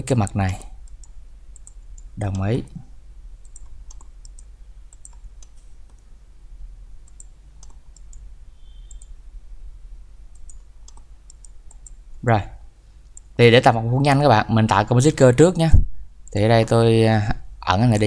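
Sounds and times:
steady low hum: 0:00.0 - 0:18.0
computer mouse clicking: 0:00.8 - 0:02.5, 0:03.4 - 0:06.1, 0:07.0 - 0:09.2, 0:10.3 - 0:12.0.

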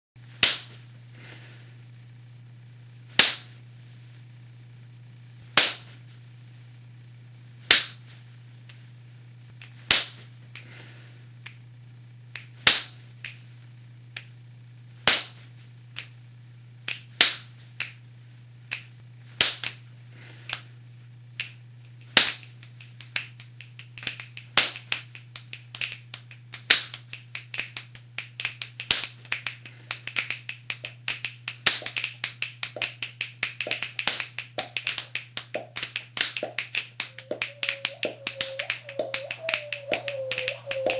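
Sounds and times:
finger snaps: 0:11.4 - 0:11.6, 0:12.3 - 0:13.4, 0:14.1 - 0:14.4, 0:15.1 - 0:16.2, 0:16.9 - 0:18.0, 0:18.7 - 0:19.8, 0:20.4 - 0:20.7, 0:21.4 - 0:40.9
body-percussion clicks: 0:22.4 - 0:40.9
low hum: 0:34.7 - 0:40.9.

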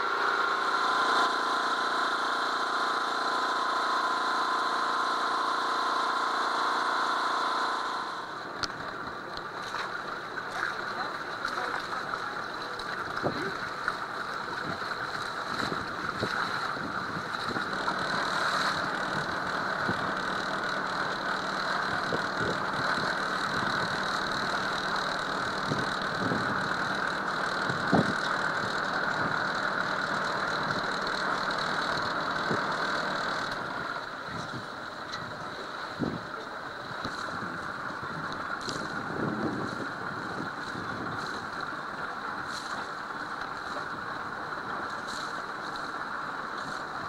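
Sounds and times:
boat engine running: 0:00.0 - 0:47.0.

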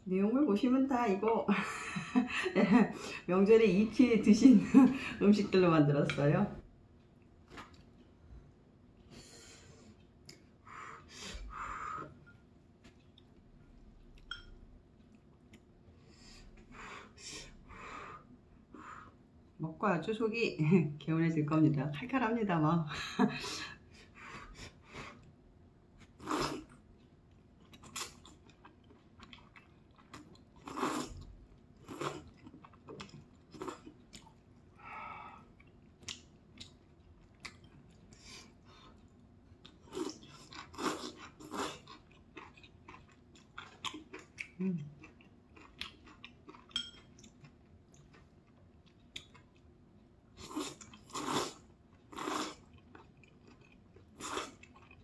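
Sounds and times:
person chewing: 0:07.1 - 0:08.2, 0:09.8 - 0:17.6, 0:26.0 - 0:34.8, 0:35.4 - 0:55.0.

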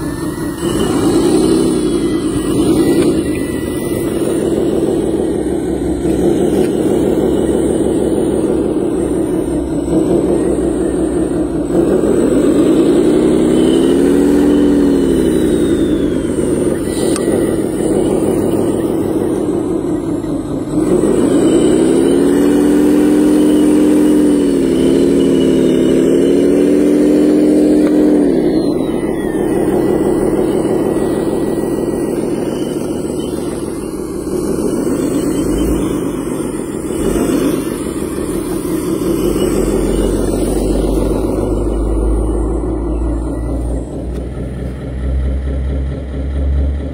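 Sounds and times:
model loader motor running: 0:00.0 - 0:46.9.

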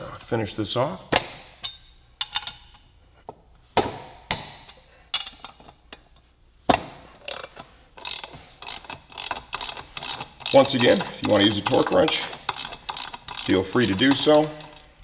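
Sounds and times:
socket wrench clinking on nuts: 0:01.6 - 0:02.8, 0:07.2 - 0:15.0.

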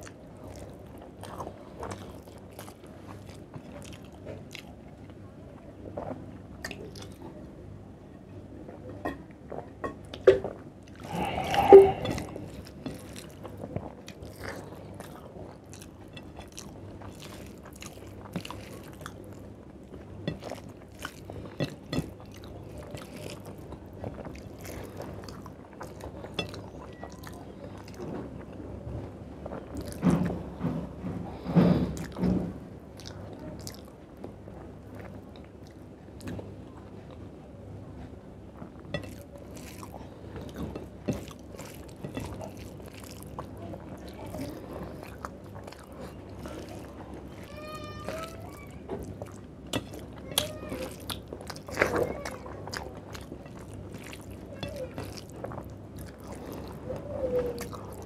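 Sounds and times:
fingers mixing wet food: 0:00.0 - 0:05.1, 0:10.8 - 0:36.6, 0:38.5 - 0:58.0
man chewing: 0:10.9 - 0:19.4, 0:33.0 - 0:33.9, 0:38.6 - 0:47.5, 0:49.0 - 0:58.0
drinking from plastic bottle: 0:11.0 - 0:12.6.

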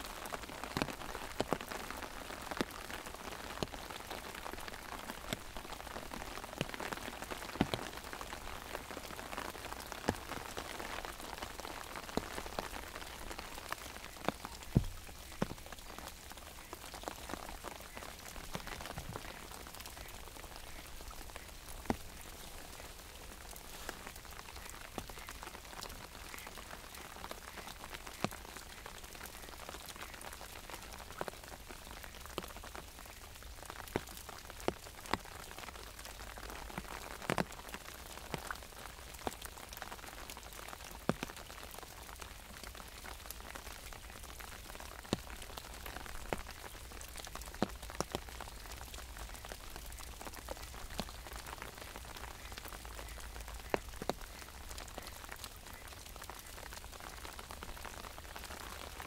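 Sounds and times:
rain pattering on umbrella: 0:00.0 - 0:59.0.

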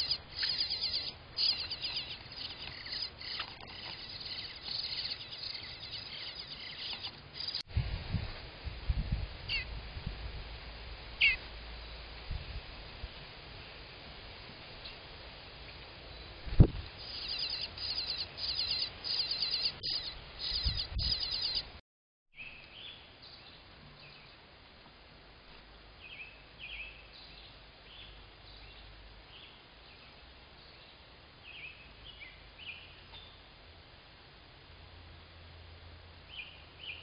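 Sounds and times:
nestlings chirping: 0:00.0 - 0:07.7, 0:17.0 - 0:21.8.

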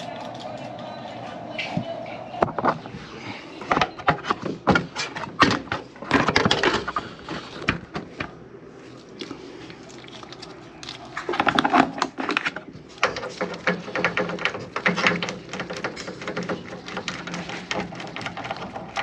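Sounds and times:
knocks and clicks of handling: 0:11.3 - 0:19.0.

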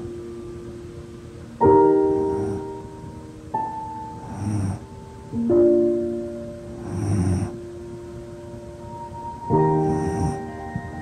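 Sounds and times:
slow soft piano chords: 0:00.0 - 0:11.0
dog snoring: 0:02.1 - 0:02.8, 0:04.2 - 0:04.9, 0:06.8 - 0:07.6, 0:09.8 - 0:11.0.

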